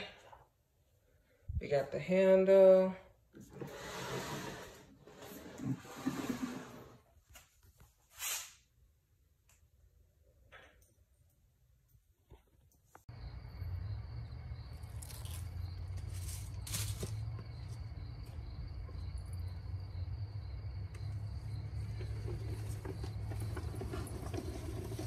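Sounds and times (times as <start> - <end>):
insects chirping: 13.1 - 25.0.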